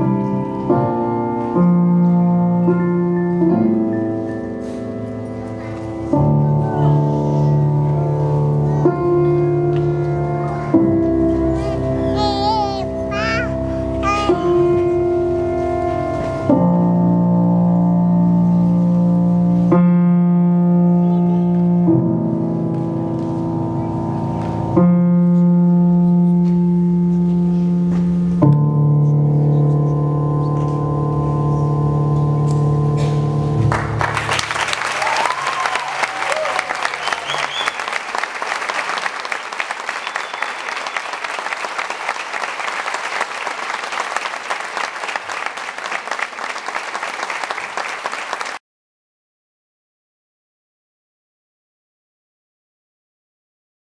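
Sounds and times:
long held music chords: 0:00.0 - 0:19.7
audience applause: 0:33.7 - 0:48.6
whistle in crowd: 0:36.5 - 0:38.0, 0:39.9 - 0:41.2.

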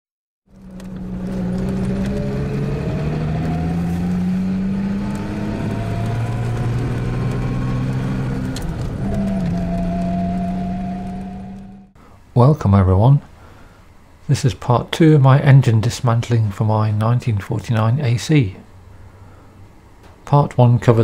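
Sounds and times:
car engine running: 0:00.5 - 0:12.0.

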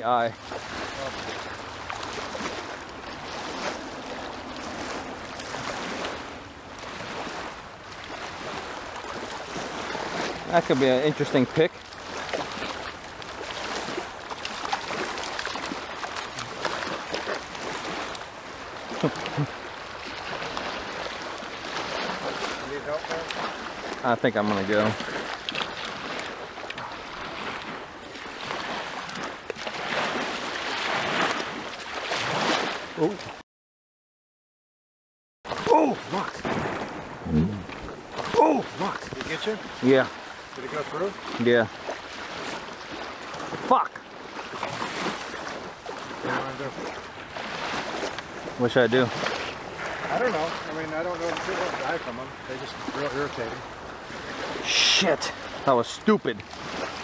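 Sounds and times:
small waves lapping on shore: 0:00.0 - 0:33.4, 0:35.5 - 0:57.0.

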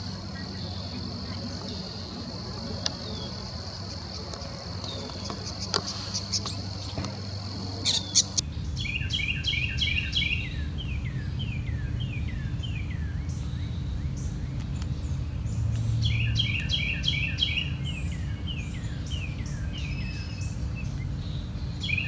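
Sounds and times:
high insect drone: 0:00.0 - 0:22.0
low background rumble: 0:00.0 - 0:22.0
scattered clicks: 0:02.7 - 0:03.1
songbird singing falling notes: 0:02.7 - 0:22.0.

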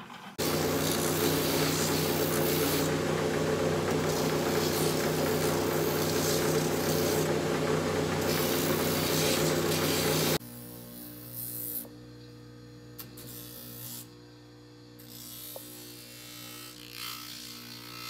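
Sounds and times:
machine motor hum: 0:00.0 - 0:10.6
sole sanding on spinning wheel: 0:00.4 - 0:10.4.

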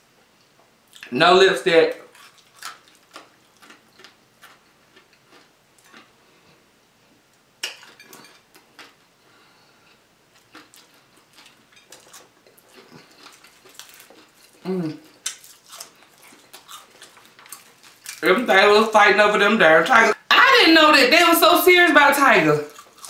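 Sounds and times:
crispy fried fish crackling: 0:01.0 - 0:06.1, 0:10.3 - 0:18.9.

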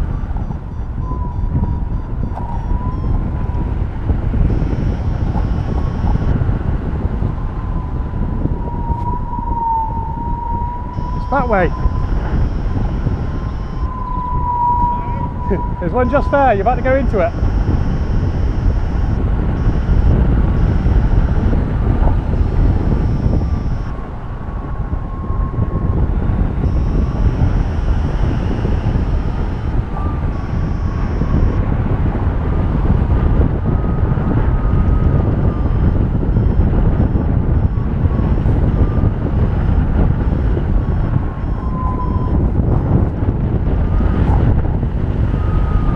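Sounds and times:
electronic beeping: 0:00.0 - 0:03.7, 0:04.4 - 0:06.4, 0:10.5 - 0:24.0, 0:26.6 - 0:31.7, 0:34.9 - 0:43.0
wind buffeting microphone: 0:00.0 - 0:45.9.

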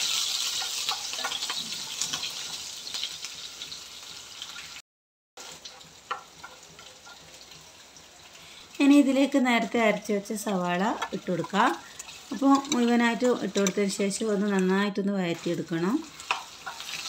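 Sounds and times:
food sizzling in hot oil: 0:00.0 - 0:04.8, 0:05.4 - 0:17.0
wooden spatula scraping a pan: 0:05.4 - 0:07.6.

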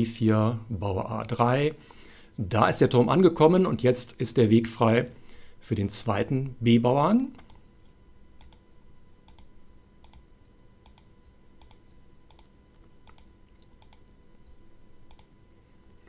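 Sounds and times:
faint electrical hum: 0:00.0 - 0:16.0
faint computer clicks: 0:09.3 - 0:15.3.

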